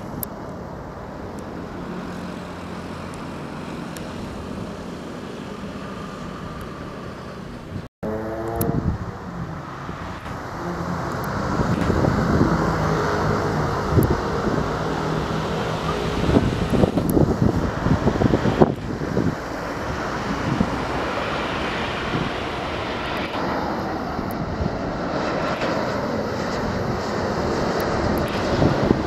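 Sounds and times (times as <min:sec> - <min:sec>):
jet airliner rumble: 0:00.0 - 0:29.0
road traffic: 0:00.0 - 0:29.0.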